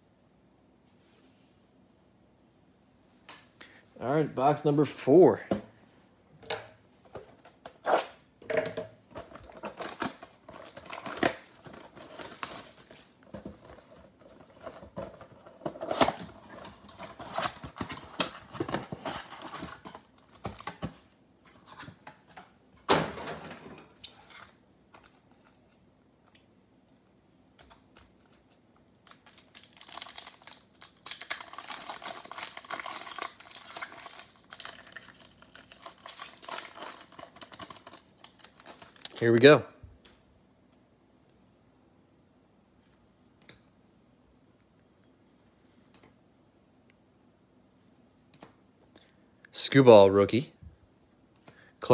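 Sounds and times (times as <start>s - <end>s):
plastic wrapper crinkling: 9.2s - 20.9s, 29.0s - 39.2s.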